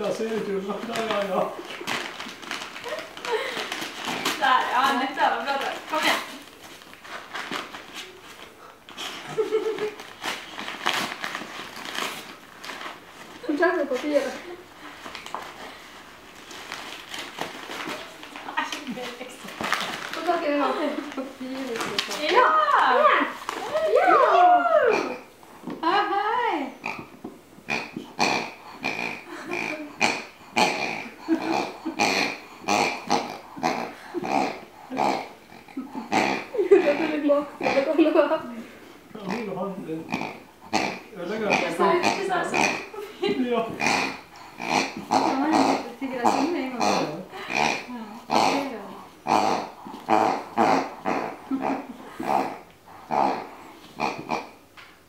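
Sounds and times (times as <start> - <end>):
dog tearing gift wrapping: 0.0 - 14.4, 15.0 - 24.2.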